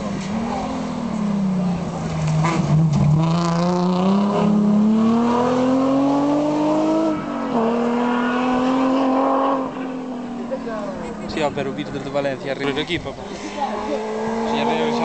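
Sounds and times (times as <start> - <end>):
car engine accelerating hard: 0.0 - 15.0.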